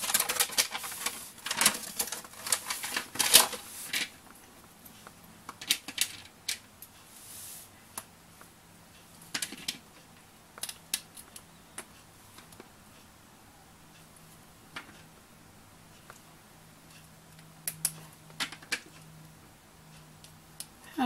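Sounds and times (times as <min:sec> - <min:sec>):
plastic pieces clicking: 0:00.0 - 0:04.1, 0:05.5 - 0:06.6
soft rustle: 0:00.0 - 0:05.1, 0:06.9 - 0:08.6.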